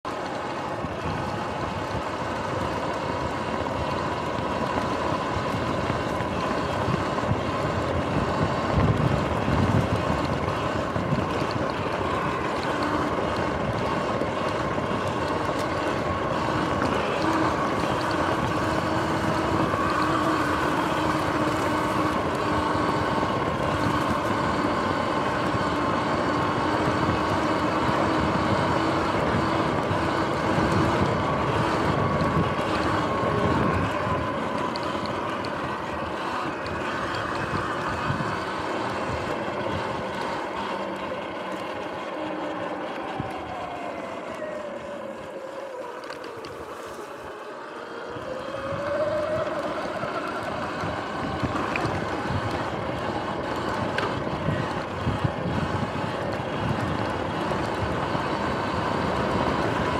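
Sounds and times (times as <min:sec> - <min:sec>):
electric motor whine: 0:00.0 - 0:59.9
wind on microphone: 0:00.6 - 0:45.3, 0:46.3 - 0:59.9.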